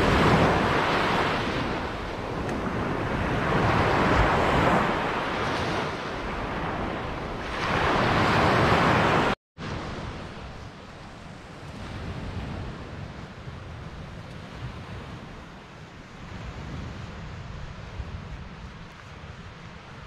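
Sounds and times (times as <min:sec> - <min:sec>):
small waves breaking on beach: 0:00.0 - 0:18.7.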